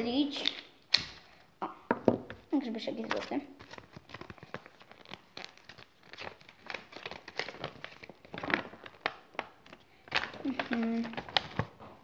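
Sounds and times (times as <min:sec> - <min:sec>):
paper leaflet crinkling: 0:02.8 - 0:11.8.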